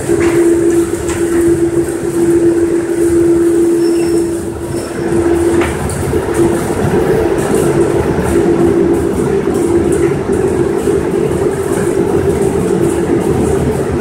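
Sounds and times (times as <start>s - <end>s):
belt lift mechanical rumble: 0.0s - 14.0s.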